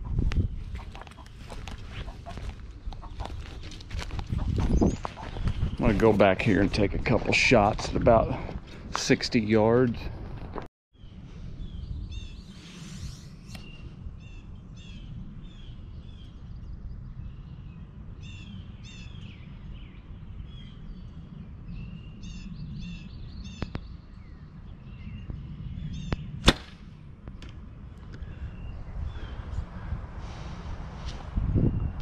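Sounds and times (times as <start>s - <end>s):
low wind rumble on microphone: 0.0s - 32.0s
small birds chirping: 0.4s - 6.6s, 11.0s - 26.4s.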